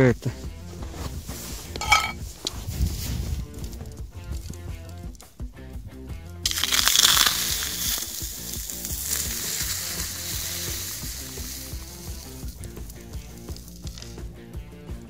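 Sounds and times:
molten metal sizzling hiss: 0:06.4 - 0:14.3.

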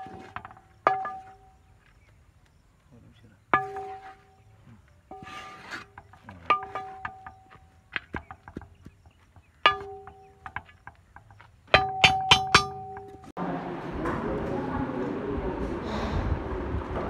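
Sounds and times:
spatula knocking ringing pot: 0:00.0 - 0:01.6, 0:05.1 - 0:13.3
metal spatula scraping pot: 0:03.5 - 0:07.6.

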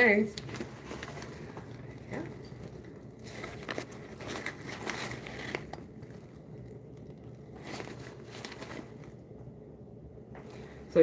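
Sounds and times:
handbag rustling: 0:00.5 - 0:09.2.

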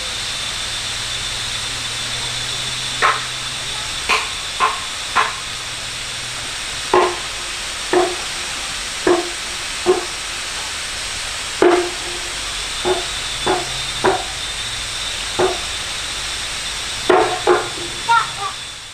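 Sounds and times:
steady high hiss: 0:00.0 - 0:18.9
blows striking wood: 0:02.4 - 0:05.6, 0:06.9 - 0:10.8, 0:11.6 - 0:18.5.

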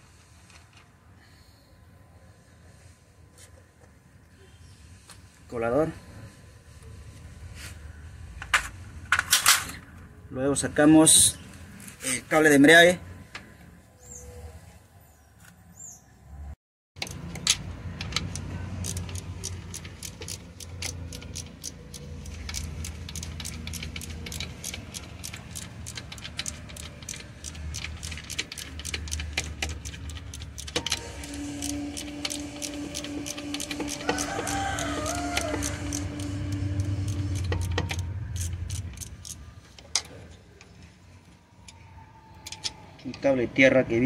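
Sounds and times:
ratchet wrench clicking: 0:17.0 - 0:40.1
low hum: 0:17.5 - 0:42.9.

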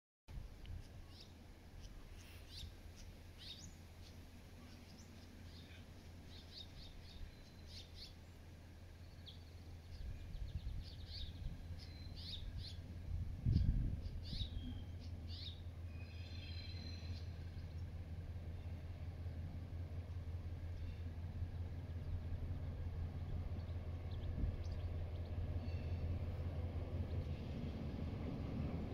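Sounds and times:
low rumble: 0:02.5 - 0:28.9
bird chirps and calls: 0:13.5 - 0:17.8.

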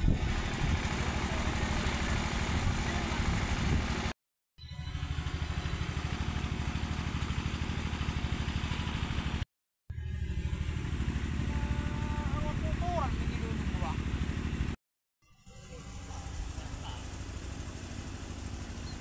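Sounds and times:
small engine running: 0:00.0 - 0:04.1, 0:04.7 - 0:14.8, 0:15.4 - 0:19.0.

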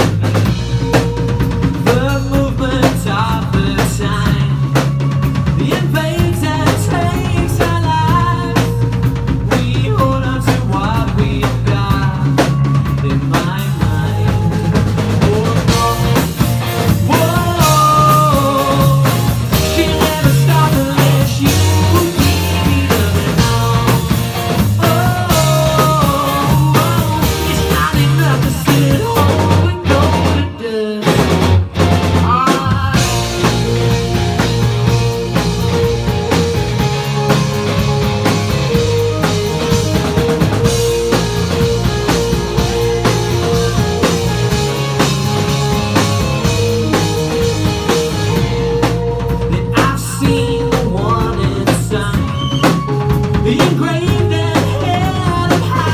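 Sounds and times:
bass guitar: 0:00.0 - 0:55.9
drum kit: 0:00.0 - 0:55.9
electric guitars: 0:00.0 - 0:55.9
man singing: 0:00.4 - 0:36.1, 0:47.3 - 0:55.9.

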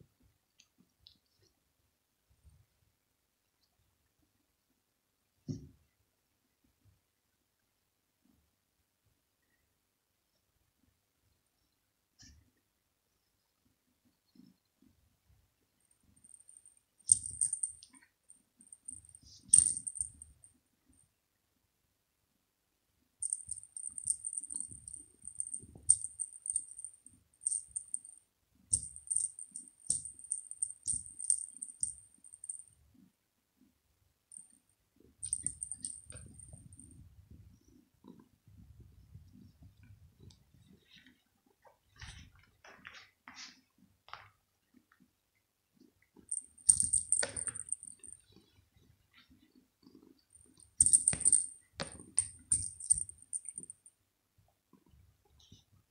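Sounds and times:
small bell jingling in toy ball: 0:16.2 - 0:18.0, 0:18.7 - 0:20.5, 0:23.2 - 0:32.7, 0:35.2 - 0:36.9, 0:46.3 - 0:48.2, 0:50.4 - 0:53.9.

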